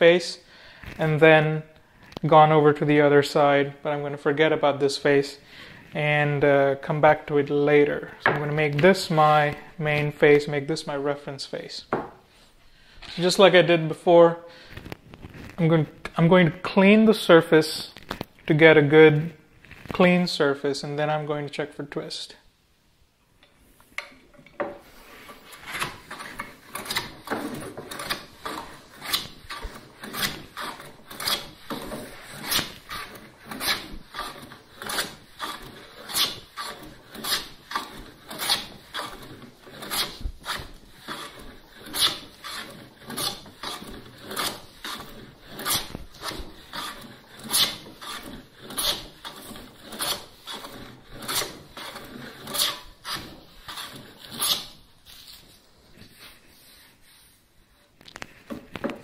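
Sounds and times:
hand plane scraping wood: 4.3s - 11.0s, 24.0s - 57.3s.

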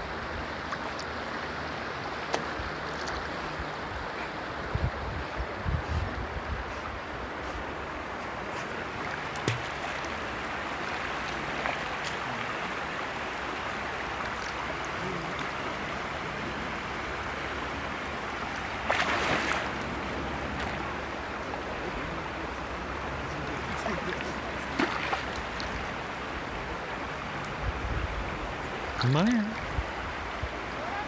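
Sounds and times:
river water lapping and trickling: 0.0s - 31.0s
splash in water: 9.0s - 10.2s, 18.8s - 19.9s, 24.6s - 25.7s.

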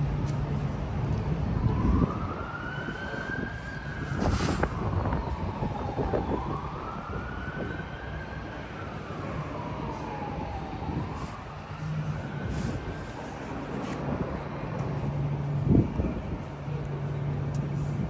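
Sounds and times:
traffic rumble: 0.0s - 18.0s
siren wailing: 1.4s - 13.8s.

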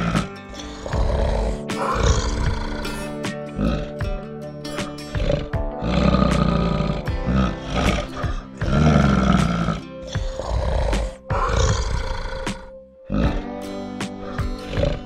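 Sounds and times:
low calls of large animal: 0.0s - 3.0s, 5.2s - 13.4s
background music: 0.0s - 15.0s.

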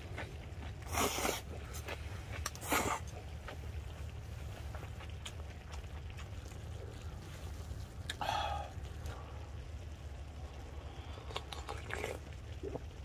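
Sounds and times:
steady low hum: 0.0s - 13.0s
slurping broth: 0.8s - 3.2s, 11.2s - 12.8s.

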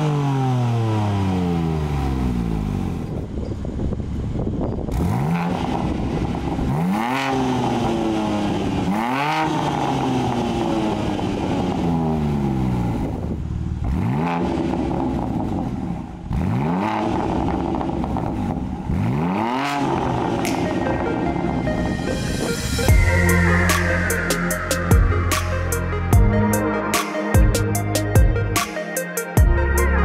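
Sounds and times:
car engine revving in blips: 0.0s - 28.7s
car engine idling: 9.6s - 16.4s, 19.8s - 28.6s.

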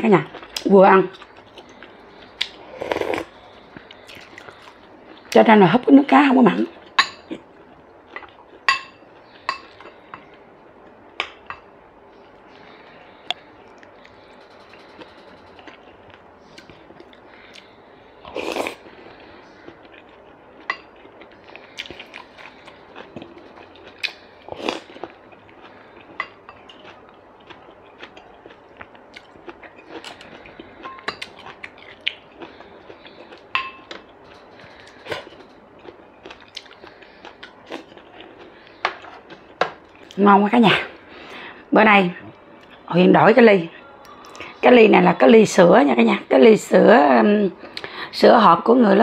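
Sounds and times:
chewing: 0.3s - 5.4s, 12.6s - 40.2s
slurping soup: 2.6s - 3.4s.

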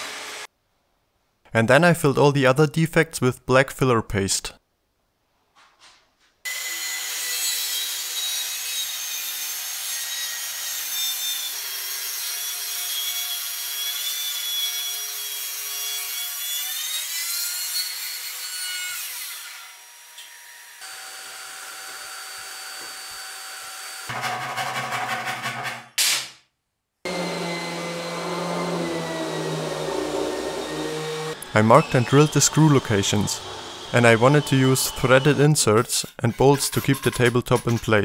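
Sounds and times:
circular saw cutting wood: 0.0s - 0.5s, 6.5s - 25.8s, 27.1s - 38.0s
steady machine whine: 27.1s - 35.4s.

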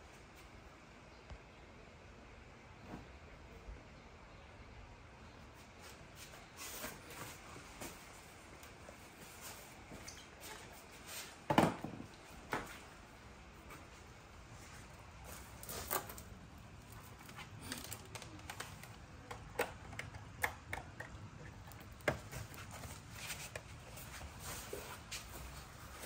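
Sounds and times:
cables rustling: 13.6s - 26.0s.

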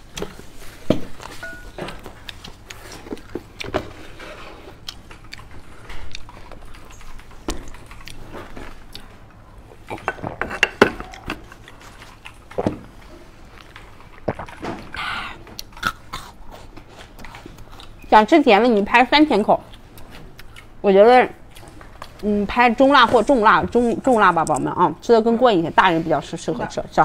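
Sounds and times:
dishes clicking and knocking: 10.0s - 11.4s.

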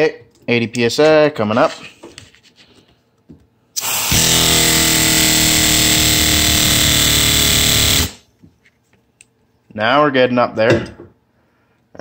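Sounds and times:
compressed air hissing: 3.8s - 8.2s
pneumatic engine running fast: 3.8s - 8.2s.

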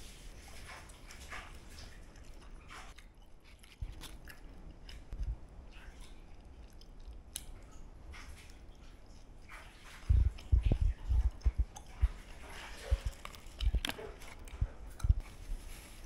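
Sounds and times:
person chewing: 0.7s - 16.0s
low bumps: 10.0s - 12.2s.

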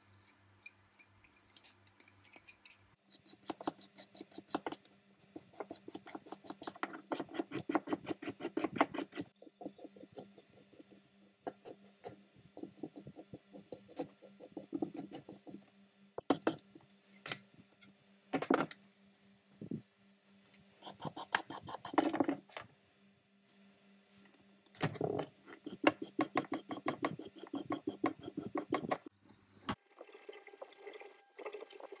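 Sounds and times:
metal file rasping on threads: 0.0s - 15.6s, 20.8s - 22.1s, 25.5s - 29.1s.

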